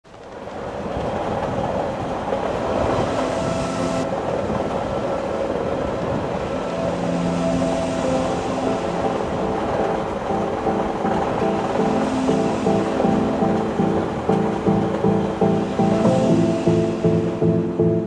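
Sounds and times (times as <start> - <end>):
underground train rumble: 0.0 - 18.0
humming tones: 5.8 - 18.0.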